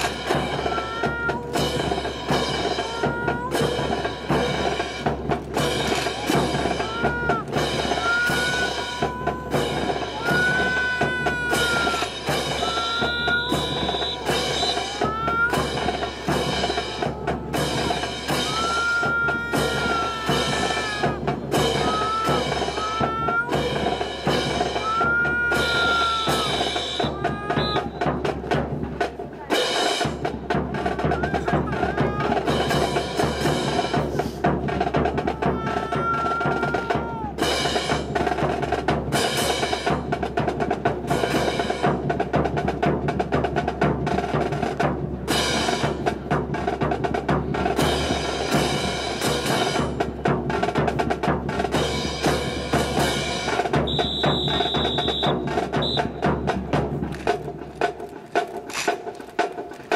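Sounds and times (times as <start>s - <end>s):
rifles clacking and slapping: 57.1s - 59.9s.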